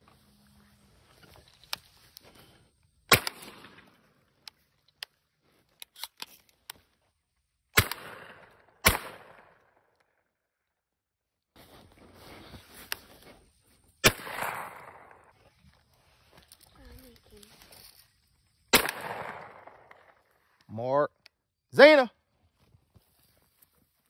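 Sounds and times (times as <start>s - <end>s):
shotgun shots echoing: 3.1s - 4.0s, 7.7s - 9.6s, 14.0s - 15.3s, 18.7s - 20.2s
faint sharp cracks: 3.1s - 6.8s.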